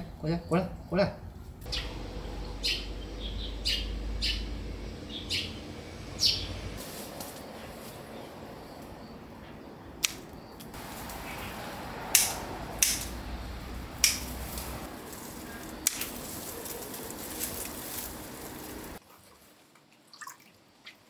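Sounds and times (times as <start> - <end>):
pruning shears snipping stems: 10.0 - 13.3, 13.9 - 18.9.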